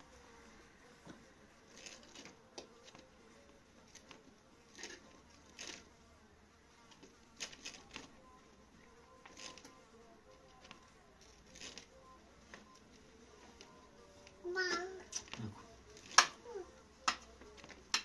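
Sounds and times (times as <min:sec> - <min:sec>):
fly buzzing: 0:00.0 - 0:06.0.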